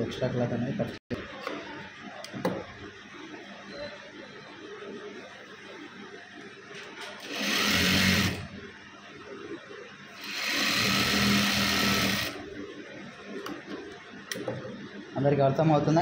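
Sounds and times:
sewing machine stitching: 7.2s - 8.5s, 10.2s - 12.4s.

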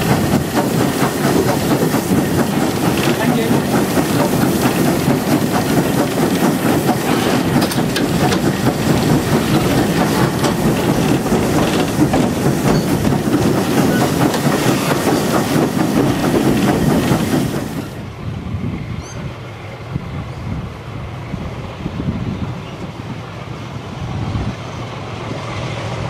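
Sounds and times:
train wheels rumbling on rail: 0.0s - 26.0s
rattling and clicks: 0.1s - 17.8s.

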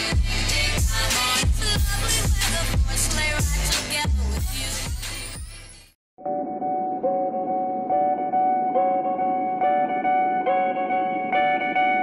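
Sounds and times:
deep bass: 0.0s - 5.7s
music with kick-drum beat: 0.0s - 5.7s.

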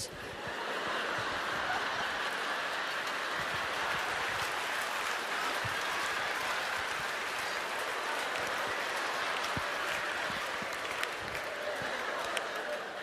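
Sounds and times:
audience laughing: 0.1s - 4.6s, 9.4s - 13.0s
audience applauding: 0.3s - 13.0s.

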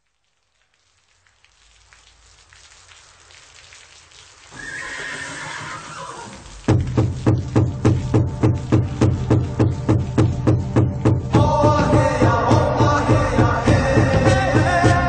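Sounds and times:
rain-like hiss: 0.0s - 15.0s
high animal cry: 4.6s - 6.4s
heavy drum beat with deep bass: 6.6s - 15.0s.

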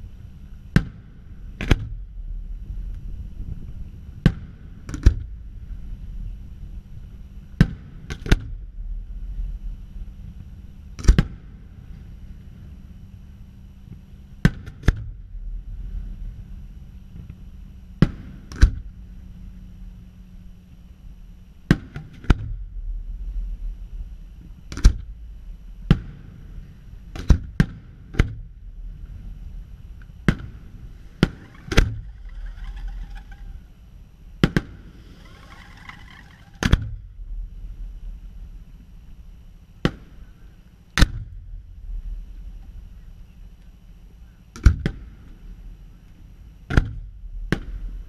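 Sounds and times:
firework shells bursting: 30.2s - 33.8s, 34.4s - 36.9s.

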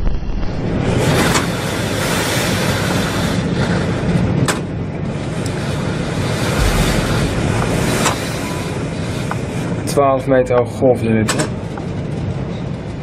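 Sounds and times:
roar of heavy seas: 5.1s - 9.8s
wind buffeting microphone: 5.1s - 9.9s
sharp knocks: 6.5s - 9.6s.

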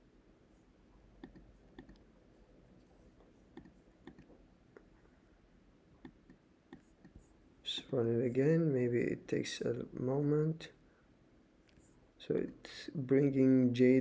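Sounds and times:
computer mouse clicks: 1.2s - 2.1s, 3.5s - 4.4s, 6.0s - 7.3s.

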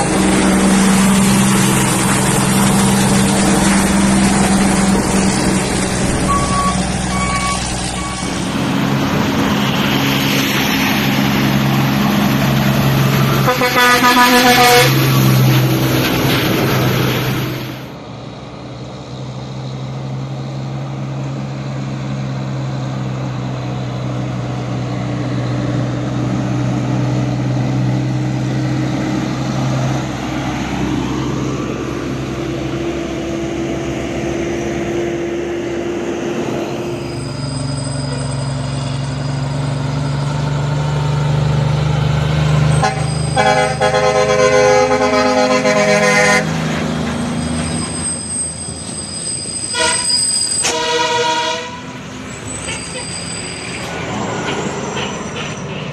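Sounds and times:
diesel truck engine running: 0.0s - 49.7s
truck air horn blaring: 13.2s - 15.3s, 42.7s - 46.6s, 49.6s - 53.2s.

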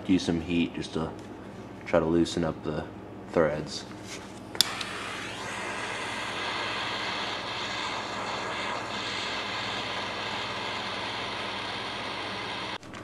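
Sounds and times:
gas torch hissing: 4.6s - 12.8s.

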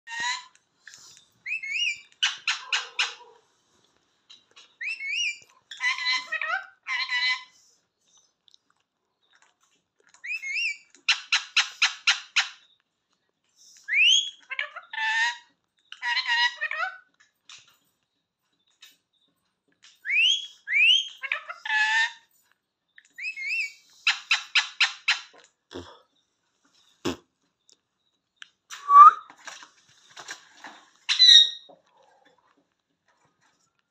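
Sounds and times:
parakeet calling and squawking: 1.4s - 3.3s, 4.6s - 7.5s, 10.2s - 12.6s, 13.9s - 17.0s, 20.0s - 22.3s, 23.2s - 25.4s, 31.1s - 31.7s
parakeet calling: 31.1s - 31.7s.

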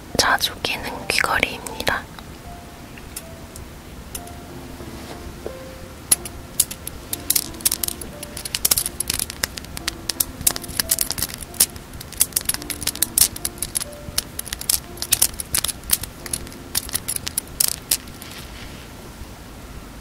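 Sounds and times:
soft background music: 0.0s - 20.0s
earring beads clicking and tinkling: 6.1s - 18.5s.

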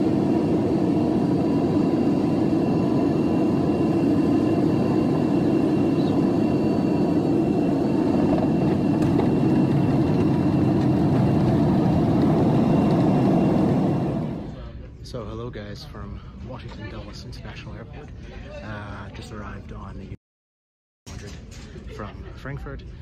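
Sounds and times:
jet engines and airflow rushing: 0.0s - 14.8s.

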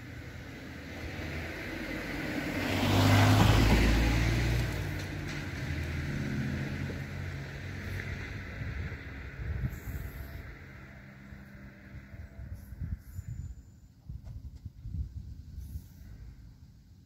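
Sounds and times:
car passing by: 0.0s - 13.3s.

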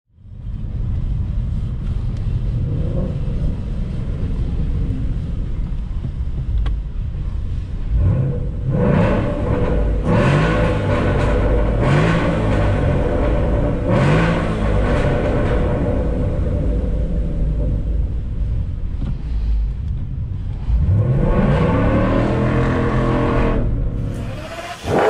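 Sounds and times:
car engine revving: 7.5s - 25.0s.

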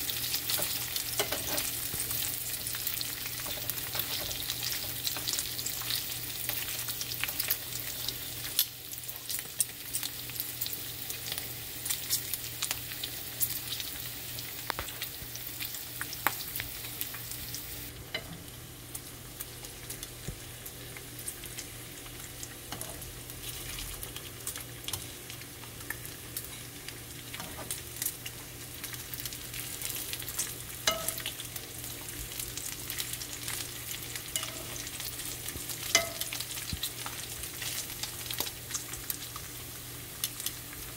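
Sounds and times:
bacon sizzling in a pan: 0.0s - 40.9s
low steady hum: 14.0s - 39.4s.

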